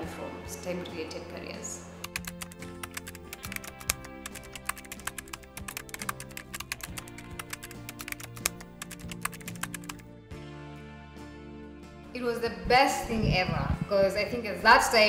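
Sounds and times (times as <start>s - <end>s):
background music sustained notes: 0.0s - 15.0s
keyboard typing clicks: 2.0s - 10.0s.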